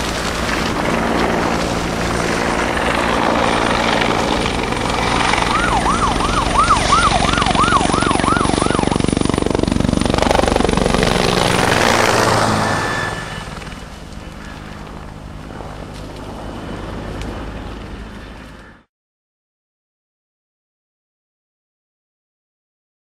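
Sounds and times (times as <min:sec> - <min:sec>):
helicopter rotor beating: 0:00.0 - 0:18.9
steady background noise: 0:00.0 - 0:18.9
siren yelping: 0:03.0 - 0:15.0.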